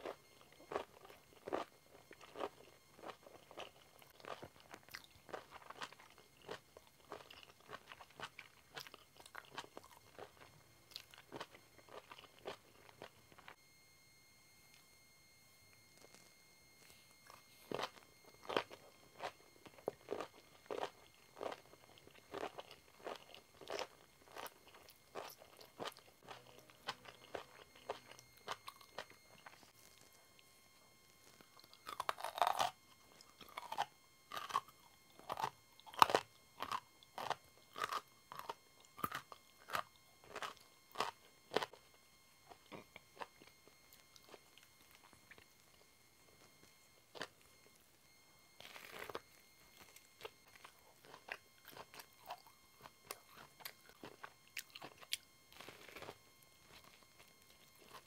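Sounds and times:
crunchy vegetable chewing: 0:00.0 - 0:13.6, 0:16.0 - 0:30.4, 0:31.2 - 0:41.9, 0:42.5 - 0:47.8, 0:48.6 - 0:58.0
loud crunchy bite: 0:31.6 - 0:32.8, 0:33.4 - 0:41.7.

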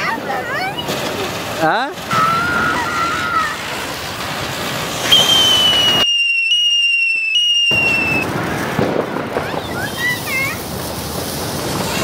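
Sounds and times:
fireworks fizzing and hissing: 0:00.0 - 0:12.0
firecracker high whistle: 0:02.1 - 0:04.2, 0:04.9 - 0:08.4.

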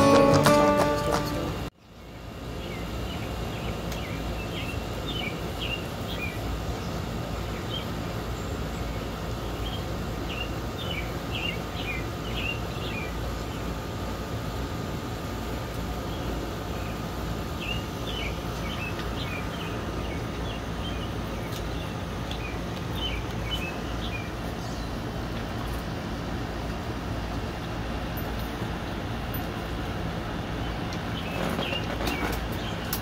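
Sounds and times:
low outdoor rumble: 0:00.0 - 0:33.0
small birds chirping: 0:01.8 - 0:13.9, 0:16.0 - 0:25.2.

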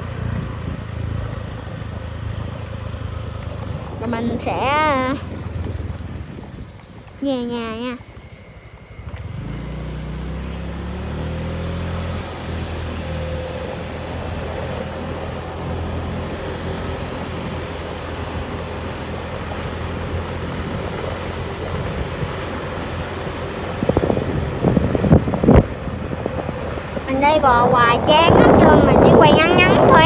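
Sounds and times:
wind rushing over microphone: 0:00.0 - 0:01.9, 0:03.6 - 0:10.6, 0:19.6 - 0:30.0
small motorbike engine: 0:00.0 - 0:30.0.

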